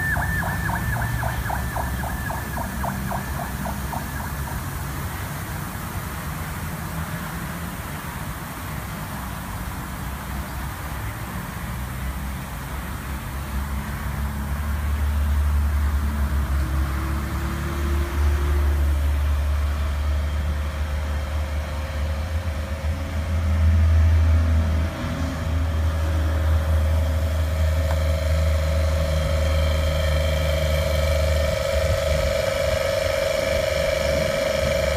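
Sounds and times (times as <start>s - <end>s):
motor low rumble: 0.0s - 5.6s, 17.2s - 34.9s
steady whine: 0.0s - 6.2s, 25.7s - 34.9s.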